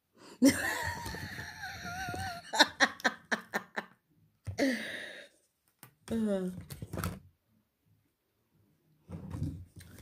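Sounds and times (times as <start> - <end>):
person laughing: 0.4 - 4.0.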